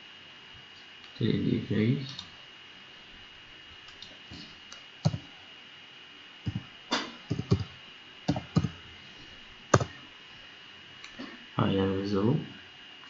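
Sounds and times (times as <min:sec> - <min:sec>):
keyboard keys clicking: 0:07.3 - 0:07.7, 0:08.3 - 0:08.8.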